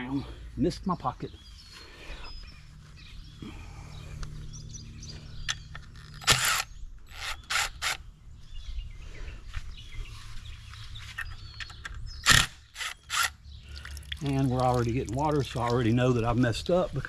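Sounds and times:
birds chirping: 0.0s - 17.0s
cordless drill running: 6.0s - 8.0s, 12.3s - 13.3s.

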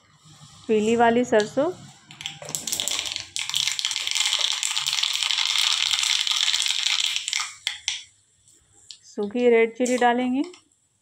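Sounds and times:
seeds sizzling in hot oil: 2.2s - 8.0s.

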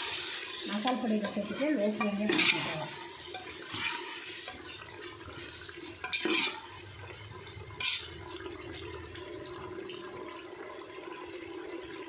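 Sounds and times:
masala sizzling and bubbling: 0.0s - 12.0s
metal ladle scraping pot: 0.7s - 7.0s, 7.7s - 8.4s.

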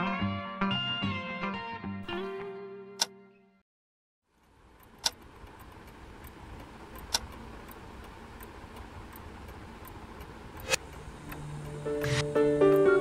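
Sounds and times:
clock ticking faintly: 4.3s - 13.0s
sharp clicks: 4.4s - 12.9s.

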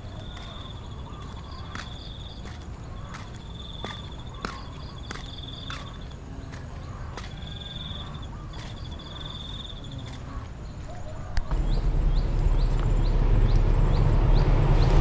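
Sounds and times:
footsteps on dirt path: 0.0s - 13.9s
insects trilling: 0.0s - 15.0s
approaching train rumble: 11.5s - 15.0s.

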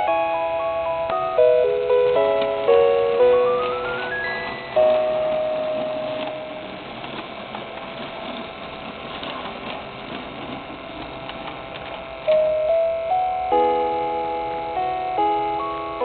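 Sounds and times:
chime tune: 0.0s - 6.8s, 12.3s - 16.0s
toy train mechanical whir: 0.0s - 13.7s.

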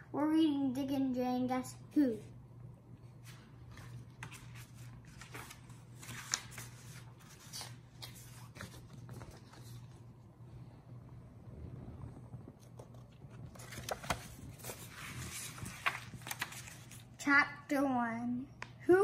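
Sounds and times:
book pages rustling: 3.2s - 10.1s, 12.4s - 17.2s.

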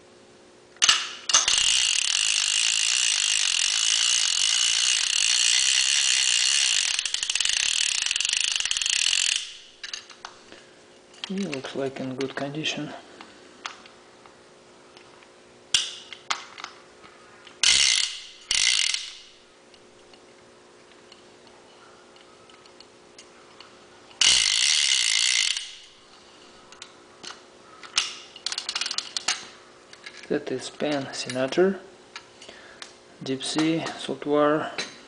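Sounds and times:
fishing reel ratchet clicking: 0.8s - 10.0s, 17.6s - 19.4s, 24.2s - 26.0s.

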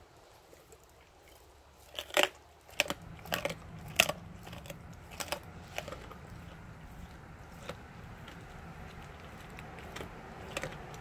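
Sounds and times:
dog crunching a bone: 0.2s - 11.0s.

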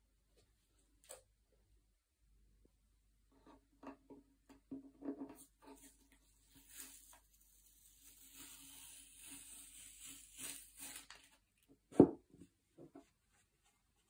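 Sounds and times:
masking tape peeling: 7.9s - 11.3s.

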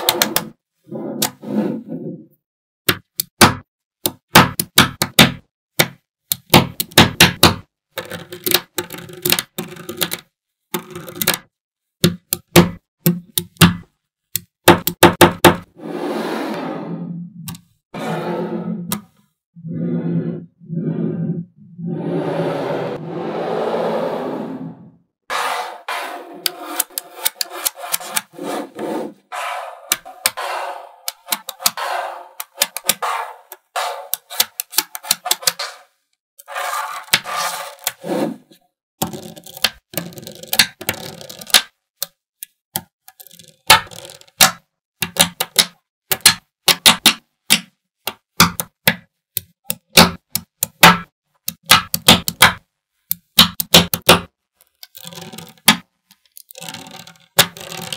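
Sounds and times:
magnetic balls rasping slides: 15.8s - 17.4s, 19.6s - 38.6s
magnetic balls clicking together: 54.8s - 57.9s
magnetic balls clattering: 56.5s - 57.9s.

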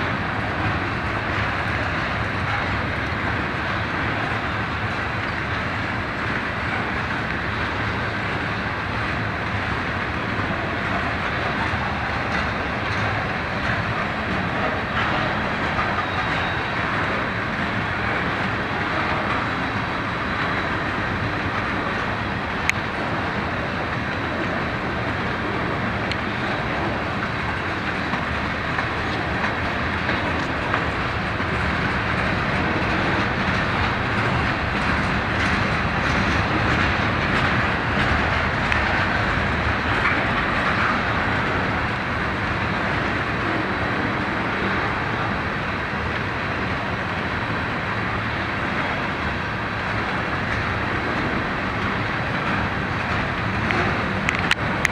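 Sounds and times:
train wheels rumbling on rail: 0.0s - 54.9s.

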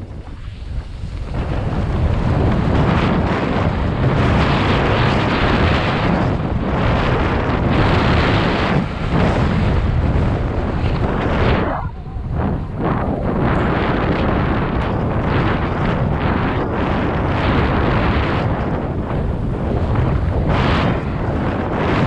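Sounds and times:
wind rushing over microphone: 0.0s - 22.0s.

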